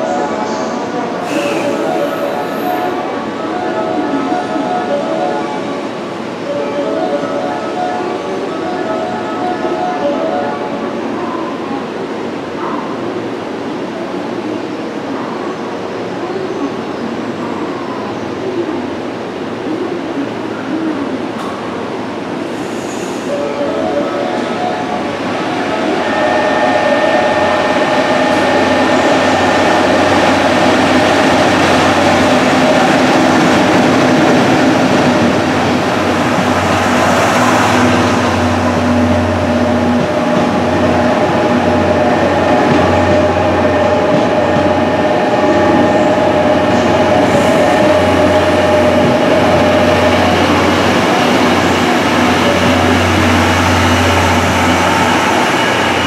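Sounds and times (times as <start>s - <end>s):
train wheels rumbling on rail: 15.7s - 56.0s.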